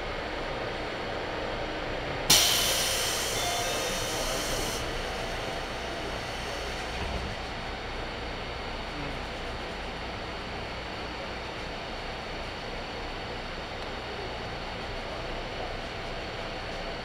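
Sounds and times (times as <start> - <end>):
steady low hum: 0.0 - 17.0
compressed air hissing from train: 2.3 - 7.7.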